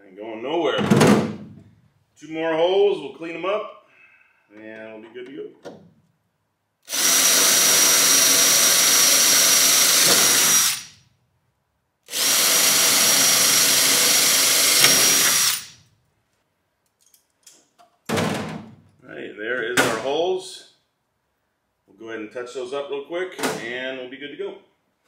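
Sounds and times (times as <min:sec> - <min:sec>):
drill whining through sheet metal: 0:06.8 - 0:11.1, 0:12.1 - 0:15.8.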